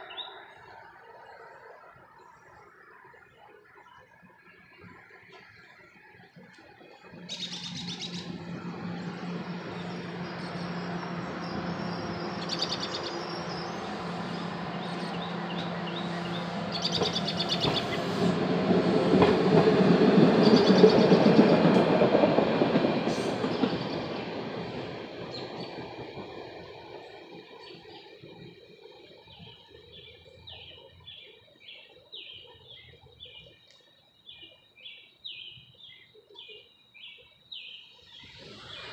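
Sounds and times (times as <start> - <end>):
trolley passing on rails: 0.0 - 38.9.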